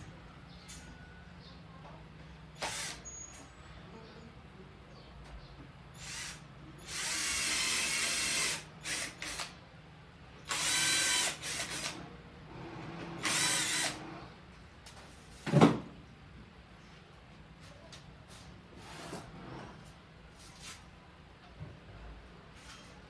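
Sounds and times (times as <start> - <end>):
power drill motor whine: 2.6 - 3.4, 6.0 - 9.5, 10.5 - 12.1, 12.7 - 14.3.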